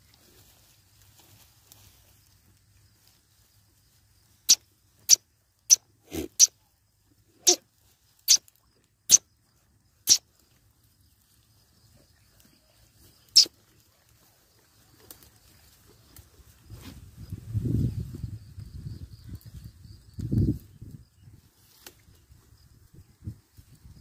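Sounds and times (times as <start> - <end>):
goat snorting: 6.0 - 6.5.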